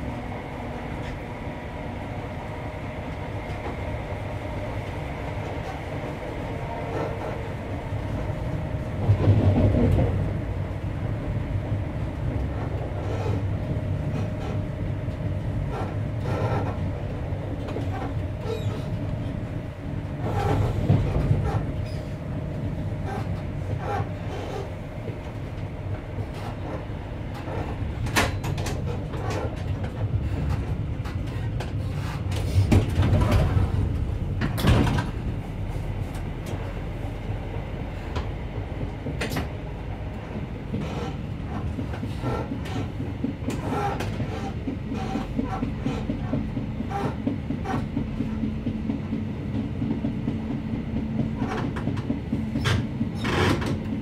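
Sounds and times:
train wheels rumbling on rails: 0.0s - 54.0s
track knocks and clicks: 6.9s - 10.4s, 12.2s - 35.4s, 38.0s - 54.0s.

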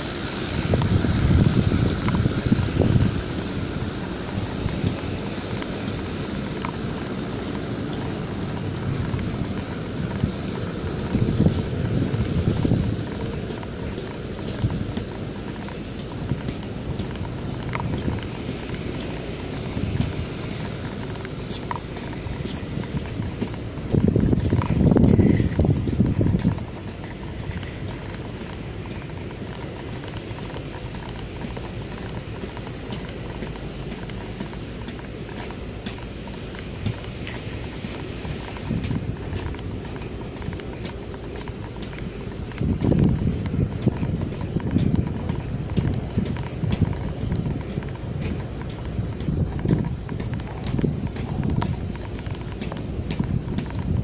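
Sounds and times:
footsteps on steel catwalk: 0.0s - 54.0s
steady rushing background: 0.0s - 54.0s
wind blowing across microphone: 0.0s - 54.0s.

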